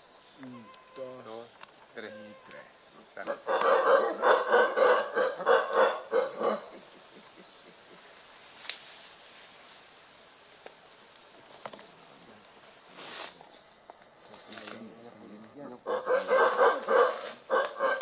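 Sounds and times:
howler monkey grunting calls: 2.0 - 8.0, 15.1 - 18.0.

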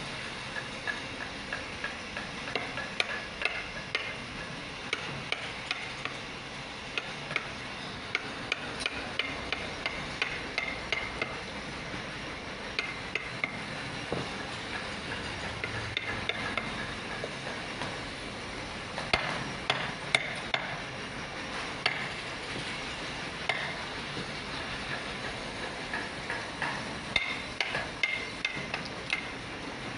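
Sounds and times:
mallet tapping chisel into wood: 8.1 - 11.4, 19.1 - 20.7, 21.8 - 22.0, 23.5 - 23.8.

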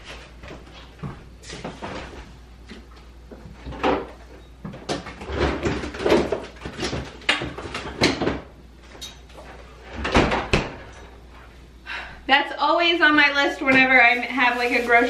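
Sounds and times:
groceries clunking and knocking: 0.5 - 11.2
kitchen doors opening and closing: 3.5 - 11.2.

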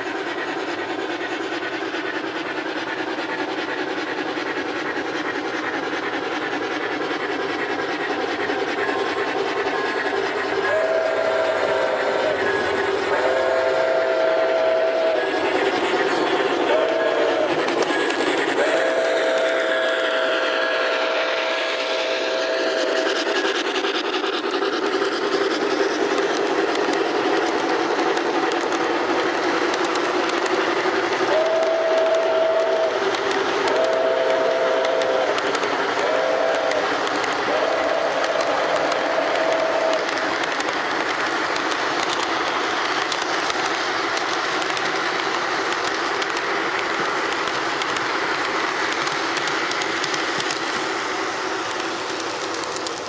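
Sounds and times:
model train rolling rush: 0.0 - 53.0
wheels clicking on track: 0.0 - 53.0
model locomotive whistle: 9.8 - 23.4, 31.2 - 42.2.

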